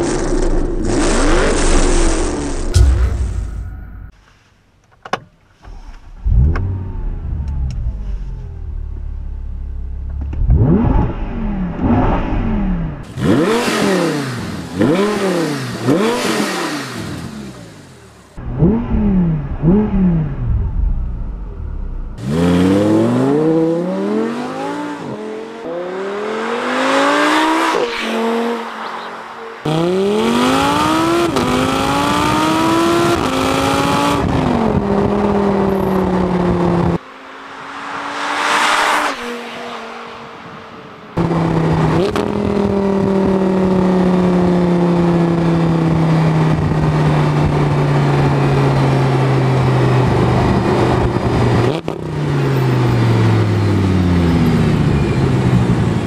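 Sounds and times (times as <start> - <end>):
car engine revving: 6.2 - 40.5
car accelerating with upshifts: 9.7 - 17.6, 29.6 - 37.0, 41.2 - 48.5.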